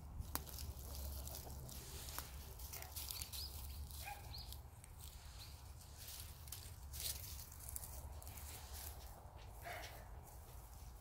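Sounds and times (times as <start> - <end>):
footsteps on dry leaves: 0.0 - 11.0.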